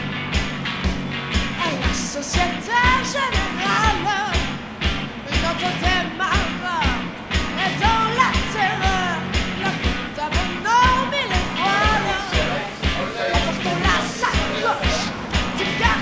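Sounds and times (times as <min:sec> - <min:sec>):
rock song with drums and bass: 0:00.0 - 0:16.0
person singing: 0:01.6 - 0:04.5, 0:05.3 - 0:16.0.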